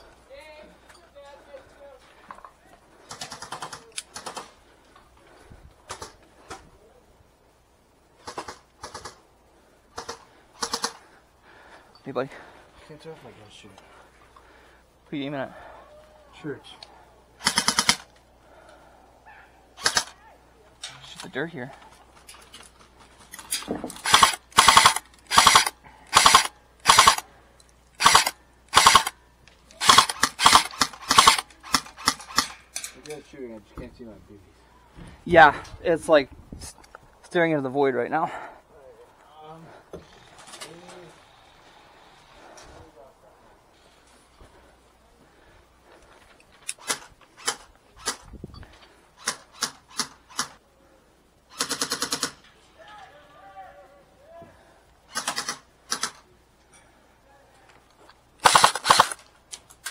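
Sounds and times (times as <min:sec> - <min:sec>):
airsoft rifle firing bursts: 0:08.2 - 0:09.2, 0:09.9 - 0:11.0, 0:17.4 - 0:18.1, 0:19.8 - 0:20.1, 0:24.0 - 0:27.3, 0:28.0 - 0:29.2, 0:29.8 - 0:32.6, 0:51.5 - 0:52.4, 0:55.1 - 0:56.2, 0:58.4 - 0:59.2.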